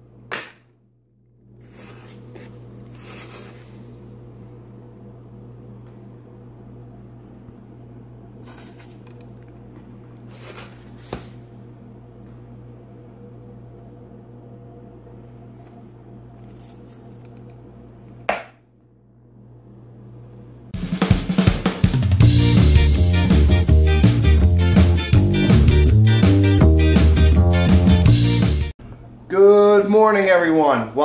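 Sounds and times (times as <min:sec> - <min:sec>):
steady background hum: 0:00.0 - 0:22.2, 0:28.8 - 0:31.0
coffee grounds rustling pour: 0:08.4 - 0:09.2, 0:15.5 - 0:17.4.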